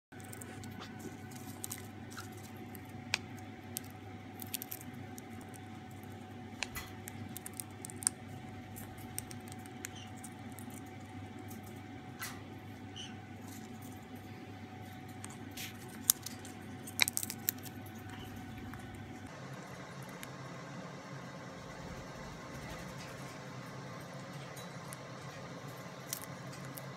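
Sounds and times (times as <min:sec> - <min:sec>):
bird pecking clicks and crunches: 0:00.1 - 0:12.4, 0:15.1 - 0:19.0, 0:24.6 - 0:26.9
low background hum: 0:00.1 - 0:26.9.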